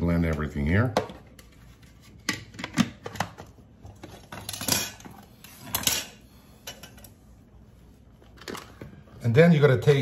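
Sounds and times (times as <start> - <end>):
utensils clattering on wooden board: 2.3 - 7.1.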